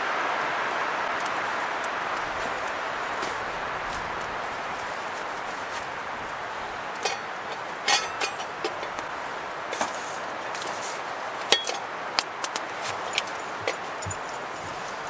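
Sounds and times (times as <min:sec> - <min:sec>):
campfire hissing: 0:00.0 - 0:15.0.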